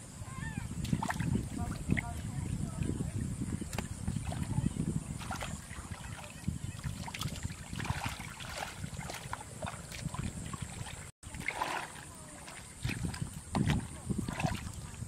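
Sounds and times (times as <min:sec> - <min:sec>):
splashing through muddy water: 0:00.6 - 0:15.0.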